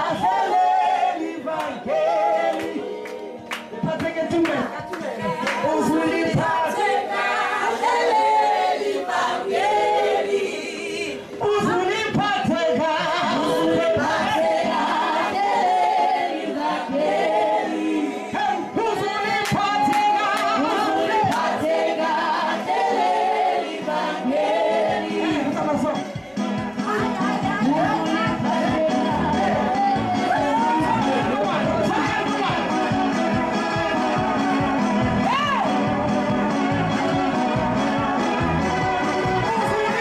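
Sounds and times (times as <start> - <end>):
group singing a hymn: 0.0 - 3.5, 4.8 - 40.0
woman singing into a microphone: 26.9 - 31.0.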